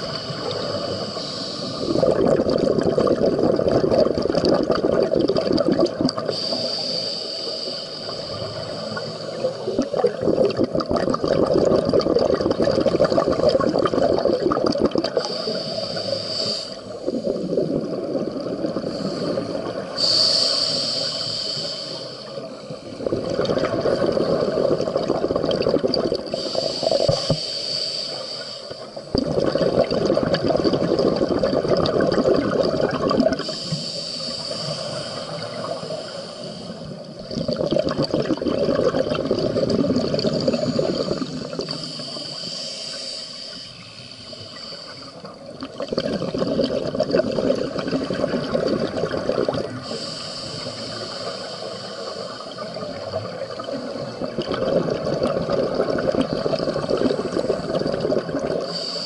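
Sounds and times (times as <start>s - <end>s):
scuba regulator bubbling exhalations: 0.0s - 7.0s, 8.3s - 21.4s, 22.8s - 27.4s, 29.1s - 33.9s, 37.1s - 43.2s, 45.3s - 51.2s, 52.6s - 59.0s
hiss of inhaling: 0.1s - 2.0s, 6.3s - 10.1s, 15.2s - 17.5s, 18.8s - 23.0s, 26.3s - 29.1s, 33.4s - 37.1s, 40.2s - 45.4s, 49.7s - 53.0s, 58.6s - 59.0s.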